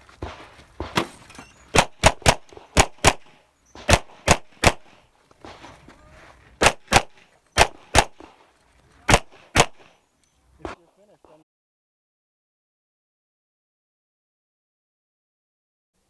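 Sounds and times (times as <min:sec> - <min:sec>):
pistol firing rapid shots: 0:01.7 - 0:05.0, 0:06.6 - 0:08.4, 0:09.1 - 0:10.0.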